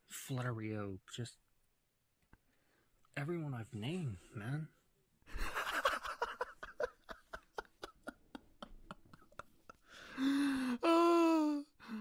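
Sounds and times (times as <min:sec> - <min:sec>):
man laughing breathily: 0:05.3 - 0:11.6.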